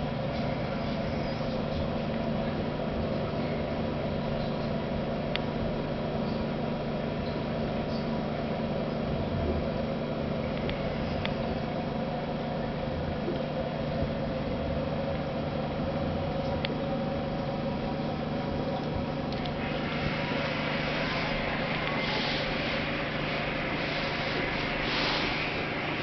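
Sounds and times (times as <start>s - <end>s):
aquarium filter motor hum: 0.0s - 26.0s
bubbling water hiss: 19.6s - 26.0s.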